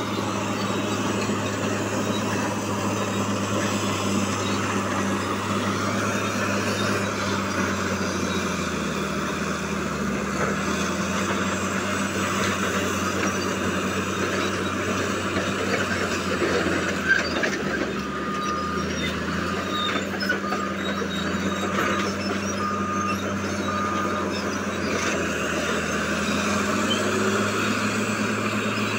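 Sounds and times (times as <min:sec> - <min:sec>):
bulldozer diesel engine running: 0:00.0 - 0:28.9
reversing alarm beeping: 0:00.0 - 0:28.9.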